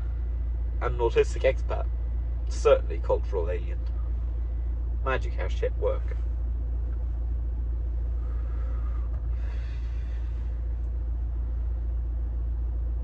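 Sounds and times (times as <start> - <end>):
low hum inside car: 0.0 - 13.0
long smoke exhale: 8.1 - 10.6.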